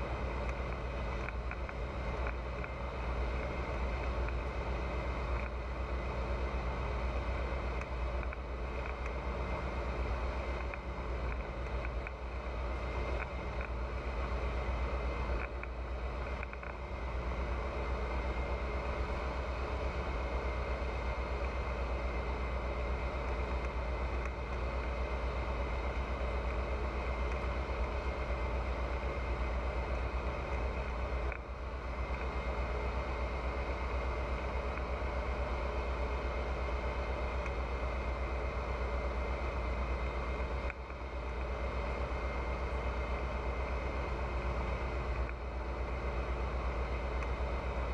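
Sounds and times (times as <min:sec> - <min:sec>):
light aircraft engine droning: 0:00.0 - 0:47.9.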